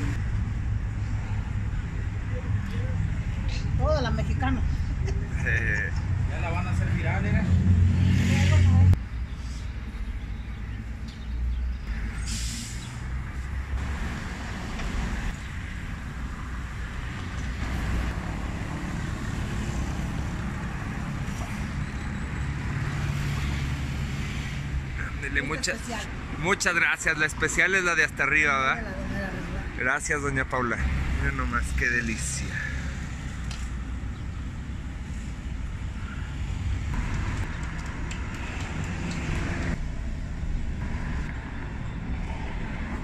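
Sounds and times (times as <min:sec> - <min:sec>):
street traffic noise: 0:00.0 - 0:43.0
hiss: 0:12.2 - 0:13.0
vehicle engine humming: 0:32.0 - 0:43.0.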